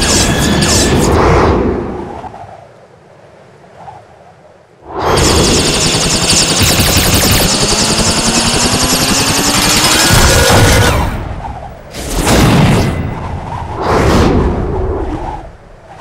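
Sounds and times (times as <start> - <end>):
machine clattering with rising whine: 5.0 - 13.4.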